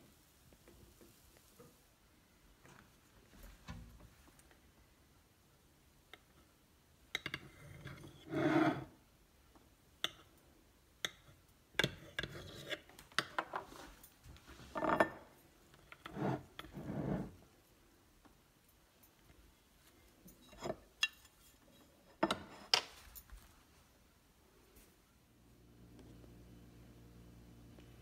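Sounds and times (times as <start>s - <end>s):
knife scraping a plate: 7.4s - 8.9s, 12.0s - 12.9s, 15.9s - 17.4s.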